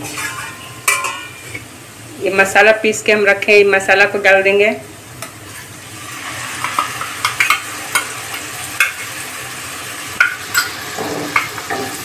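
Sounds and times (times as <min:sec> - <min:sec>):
paste sizzling in oil: 0:05.2 - 0:12.0.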